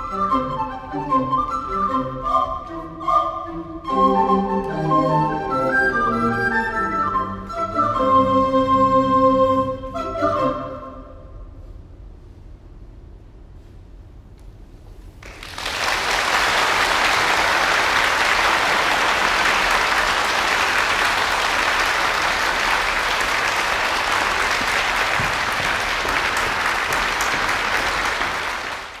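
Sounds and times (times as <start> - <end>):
audience applause: 15.2 - 29.0.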